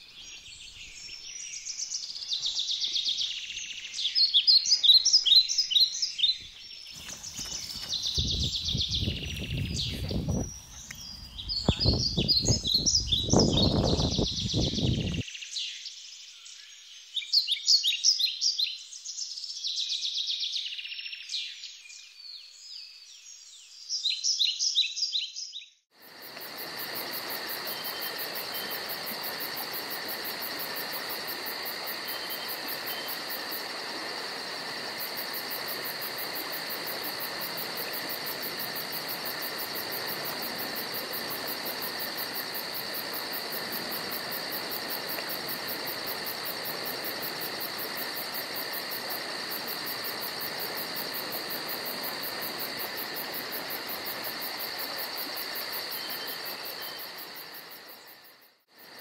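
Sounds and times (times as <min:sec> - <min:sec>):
insects trilling: 0:00.0 - 0:15.2, 0:26.0 - 0:59.0
birds chirping in chorus: 0:00.0 - 0:19.5.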